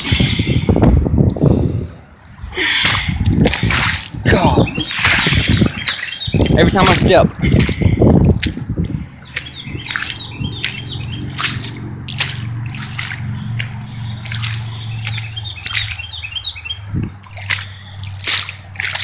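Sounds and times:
footsteps squelching in quicksand: 0:02.8 - 0:19.0
small birds chirping: 0:04.4 - 0:19.0
low steady drone: 0:08.7 - 0:19.0.

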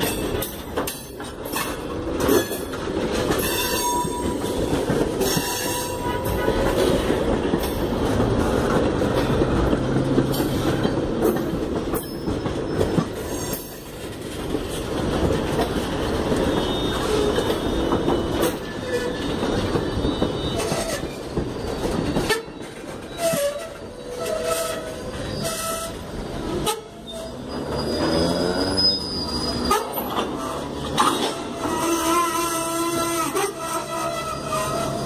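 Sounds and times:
train wheels rumbling and clacking: 0:00.0 - 0:35.0
high whining wheel squeal: 0:16.4 - 0:35.0.

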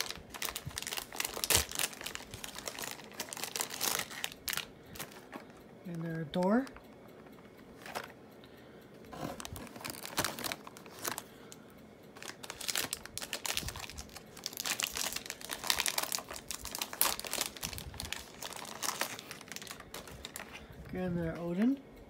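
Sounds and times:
foil pack crinkling: 0:00.0 - 0:05.6, 0:09.2 - 0:11.4, 0:12.2 - 0:20.9.

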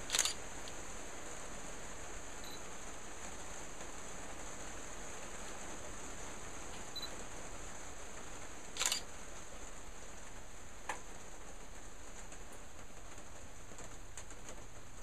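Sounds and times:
steady background hiss: 0:00.0 - 0:15.0
sharp click: 0:00.1 - 0:00.4, 0:08.8 - 0:09.0.

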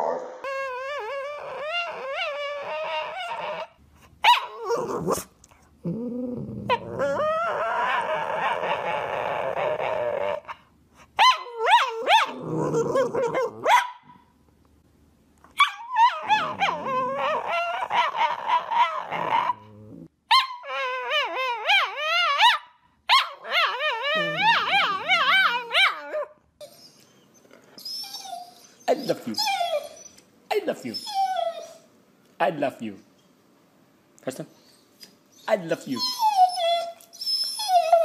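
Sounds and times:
dogs whining howls: 0:00.0 - 0:05.2, 0:06.7 - 0:10.6, 0:11.2 - 0:13.8, 0:15.6 - 0:30.2, 0:30.9 - 0:31.8, 0:35.3 - 0:38.0.

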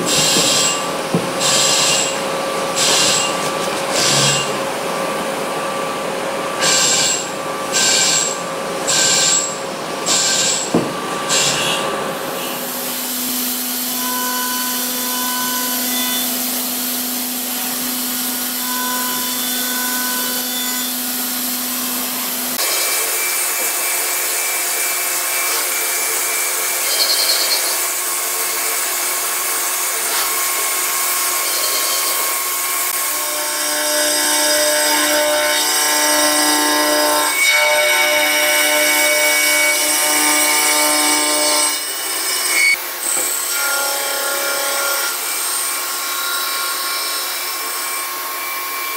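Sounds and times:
drill cutting in bursts: 0:00.0 - 0:04.6, 0:06.6 - 0:11.8.

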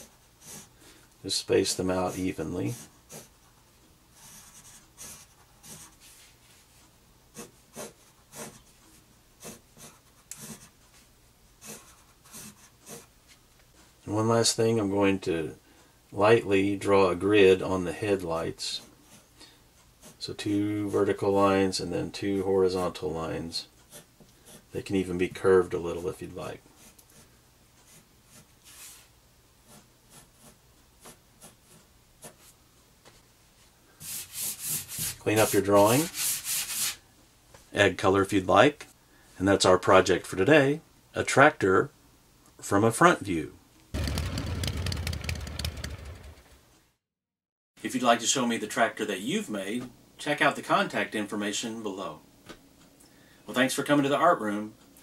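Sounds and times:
pencil scratching on paper: 0:00.0 - 0:00.8, 0:01.9 - 0:13.1, 0:18.8 - 0:20.3, 0:23.6 - 0:24.7, 0:26.8 - 0:32.6, 0:34.0 - 0:37.0.

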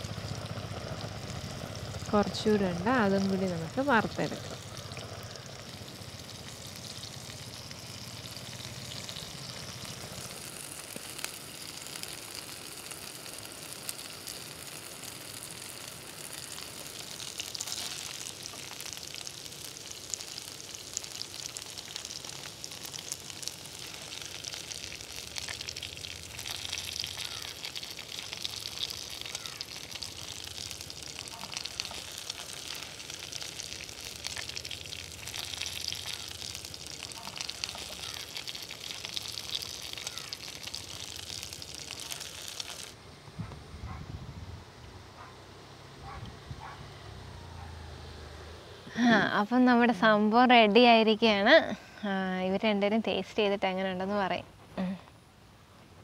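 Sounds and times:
chicken sizzling in a frying pan: 0:00.0 - 0:43.0
oil crackling: 0:00.0 - 0:43.0.

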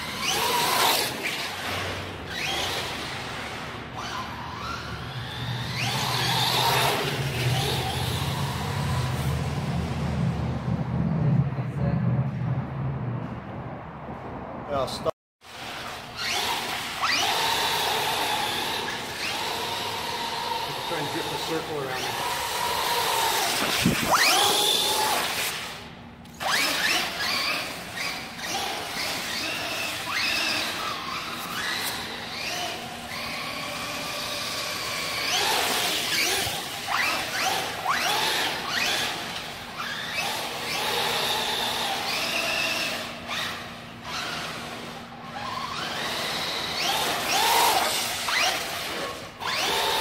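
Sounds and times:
tyres squealing on concrete: 0:00.0 - 0:08.9, 0:26.3 - 0:50.0
electric motor whining: 0:00.0 - 0:09.8, 0:15.6 - 0:50.0.

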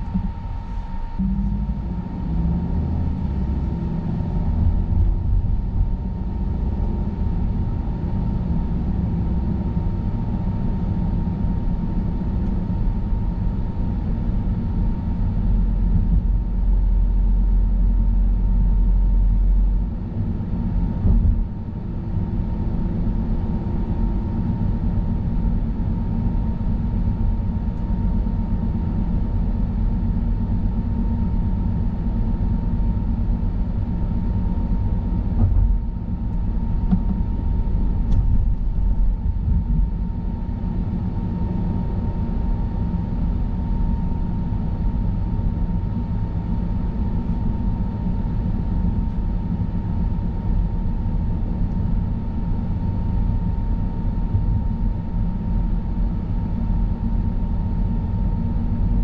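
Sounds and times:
heavy low rumble: 0:00.0 - 0:57.2
thump: 0:36.9 - 0:37.2.

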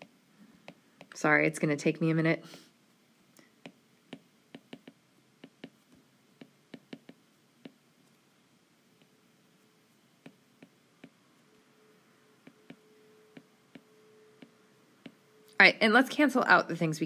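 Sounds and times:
stylus tapping glass screen: 0:00.0 - 0:01.2, 0:03.6 - 0:07.8, 0:10.2 - 0:11.3, 0:12.4 - 0:15.2.

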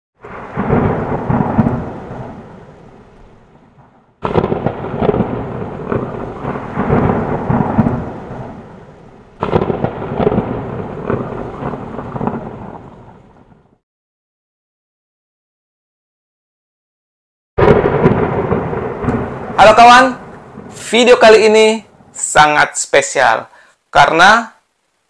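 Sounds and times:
thunder claps rumbling: 0:00.2 - 0:13.8, 0:17.6 - 0:22.4.

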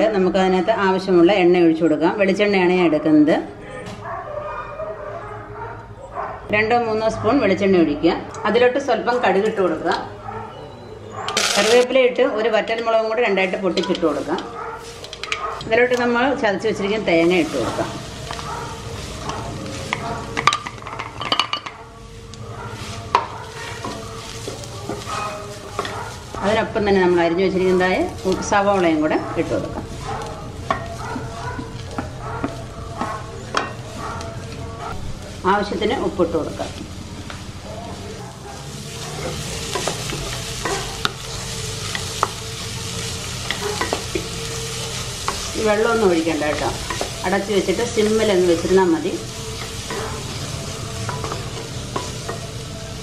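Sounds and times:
oil sizzling: 0:11.3 - 0:53.0.

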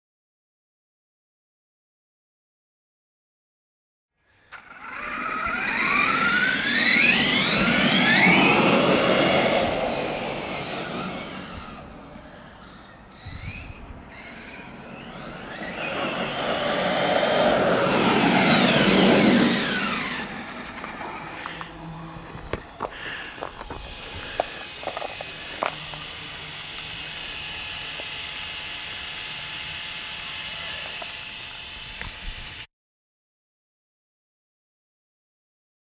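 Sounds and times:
rc truck motor whine passing: 0:04.2 - 0:32.7
faint steady whine: 0:04.5 - 0:32.7.

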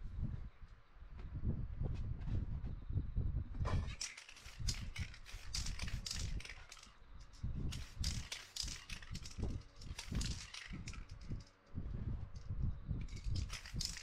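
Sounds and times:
spray can hissing bursts: 0:03.9 - 0:06.9, 0:07.7 - 0:11.2, 0:13.1 - 0:14.0.

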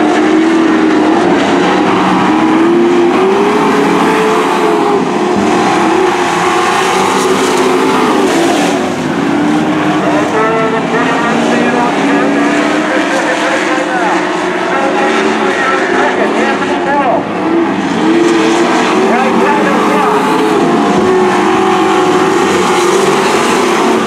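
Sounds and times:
racing truck engines: 0:00.0 - 0:24.0.

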